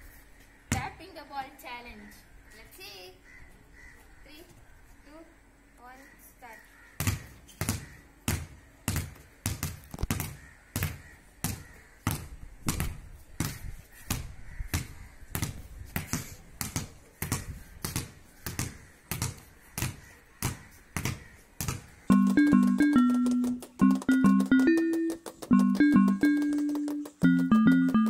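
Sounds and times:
balls bouncing on tiled floor: 0:07.0 - 0:28.0.

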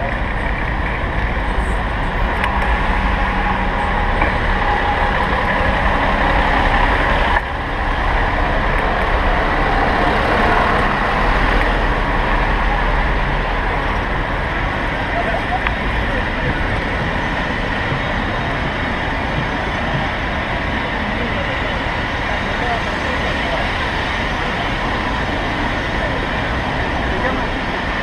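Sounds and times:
steady low rumble: 0:00.0 - 0:28.0
vehicles running and idling: 0:00.0 - 0:28.0.

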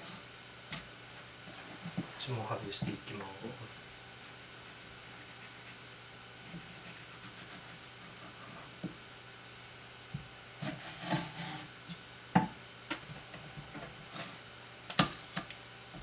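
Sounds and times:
knife scraping strokes: 0:10.6 - 0:12.0.

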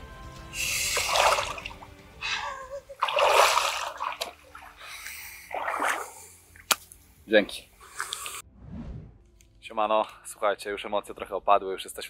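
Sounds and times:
water splashing: 0:00.8 - 0:02.0, 0:03.0 - 0:06.8.

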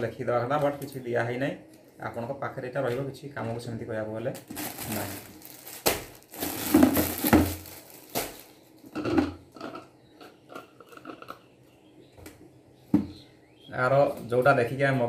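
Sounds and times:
plastic packaging rustling: 0:04.3 - 0:09.1
hard plastic knocking: 0:12.9 - 0:13.2.

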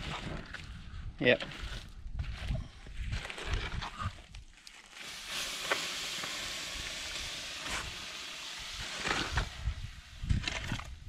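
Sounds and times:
water hissing on hot coals: 0:04.3 - 0:11.0.

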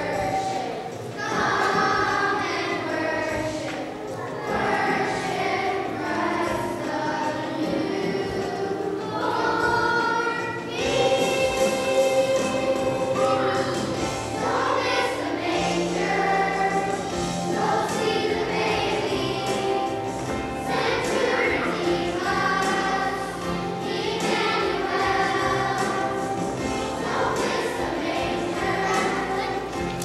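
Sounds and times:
children's choir singing: 0:00.0 - 0:30.0
instrumental accompaniment: 0:00.0 - 0:30.0.

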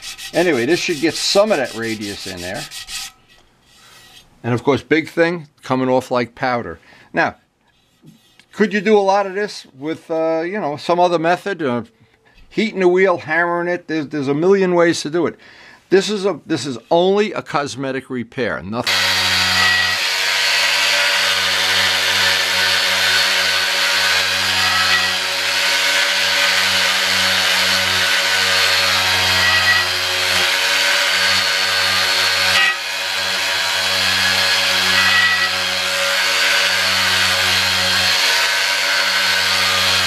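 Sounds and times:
power sander running: 0:18.8 - 0:40.0.

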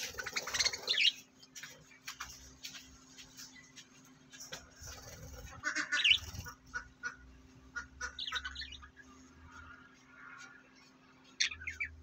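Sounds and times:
budgerigars chirping: 0:00.0 - 0:01.2, 0:05.1 - 0:07.2, 0:07.8 - 0:09.0, 0:11.4 - 0:12.0.

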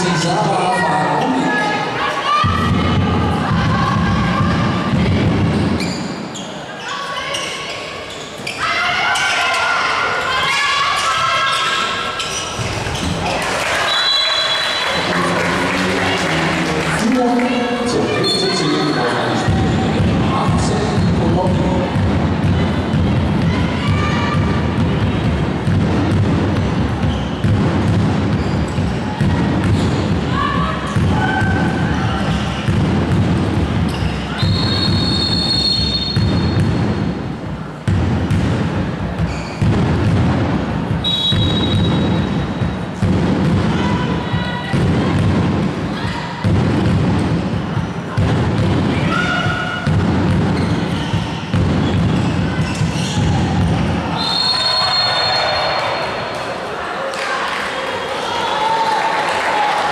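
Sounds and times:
voices echoing in a hall: 0:00.0 - 0:59.9
sneaker squeaks on court: 0:05.6 - 0:08.7, 0:27.0 - 0:27.5, 0:28.3 - 0:28.9, 0:33.8 - 0:36.8, 0:39.2 - 0:39.7, 0:50.4 - 0:53.7
referee's whistle blast: 0:13.8 - 0:15.1, 0:34.3 - 0:36.6, 0:41.0 - 0:42.4, 0:54.2 - 0:56.0
low-pitched din: 0:14.9 - 0:18.1
ball bouncing on court: 0:19.4 - 0:37.2, 0:37.8 - 0:54.0
shoes squeaking: 0:39.2 - 0:39.6, 0:50.6 - 0:53.3.

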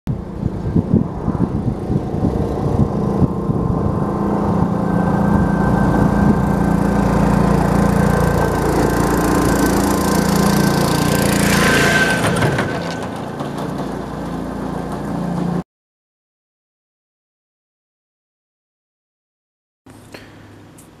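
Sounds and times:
garden tractor engine running: 0:01.8 - 0:15.6.

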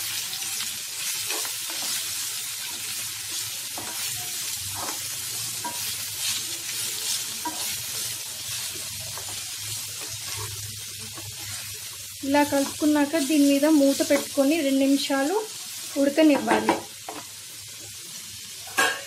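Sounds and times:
vegetables sizzling in oil: 0:00.0 - 0:19.0
wooden spatula scraping: 0:04.7 - 0:11.8.

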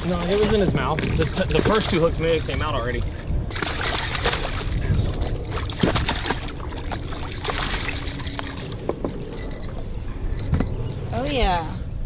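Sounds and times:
fish splashing at water surface: 0:00.0 - 0:09.6
steady low rumble: 0:00.0 - 0:12.0.

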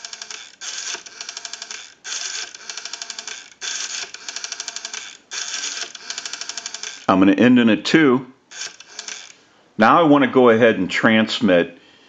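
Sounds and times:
rotary dial clicks: 0:00.0 - 0:07.1, 0:08.5 - 0:09.4
rotary dial rasp: 0:00.0 - 0:07.1, 0:08.5 - 0:09.4.

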